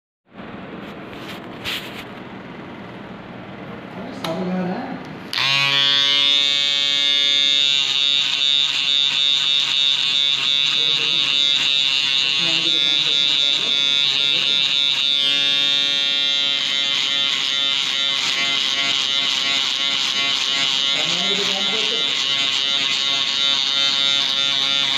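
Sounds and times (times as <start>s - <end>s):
electric hair clipper buzzing: 5.3s - 24.9s.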